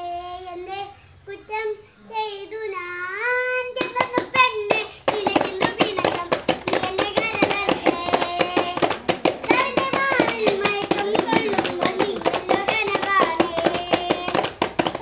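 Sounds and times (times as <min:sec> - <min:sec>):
children singing: 0:03.2 - 0:14.5
hands drumming on plastic containers: 0:03.8 - 0:15.0
toy keyboard: 0:03.8 - 0:15.0.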